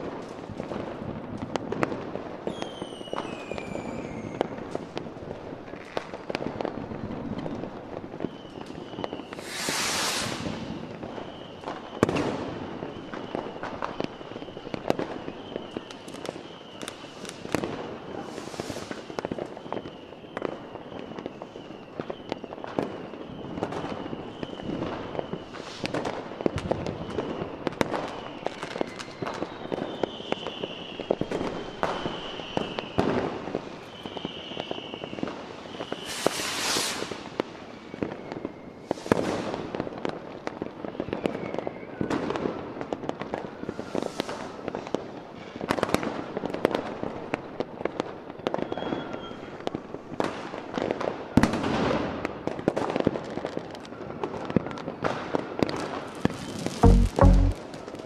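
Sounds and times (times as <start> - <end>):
fireworks bursting and crackling: 0.0 - 58.0
loud hiss: 9.4 - 10.8, 18.3 - 19.0, 36.0 - 37.2.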